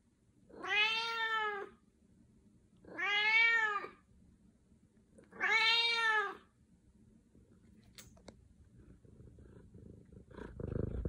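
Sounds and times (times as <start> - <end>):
cat meowing: 0.5 - 1.7, 2.9 - 4.0, 5.3 - 6.4.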